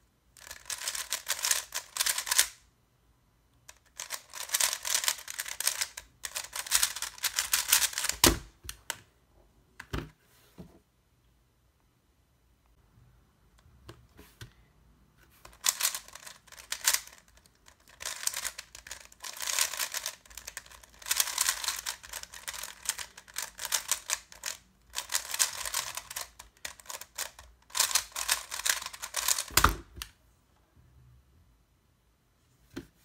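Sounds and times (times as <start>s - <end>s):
puzzle cube plastic clicking: 0.4s - 2.6s, 3.5s - 9.0s, 15.4s - 30.2s.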